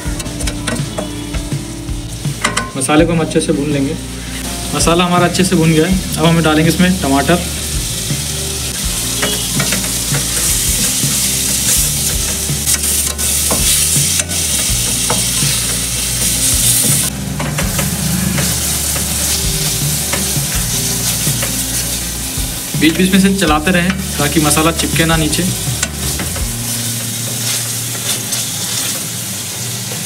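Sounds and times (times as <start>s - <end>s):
food sizzling in hot oil: 0.0s - 30.0s
spoon scraping pan: 9.0s - 22.8s.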